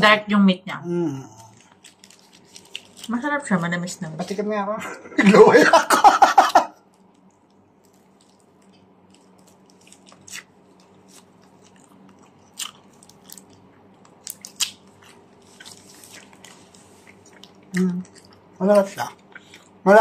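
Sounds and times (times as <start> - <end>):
faint steady hum: 0.0 - 20.0
crunchy chewing: 1.3 - 3.2, 6.9 - 19.8.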